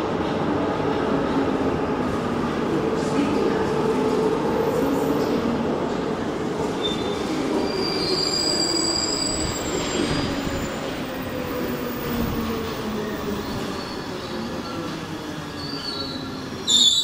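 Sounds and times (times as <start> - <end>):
high wheel squeals: 6.8 - 10.3, 13.5 - 17.0.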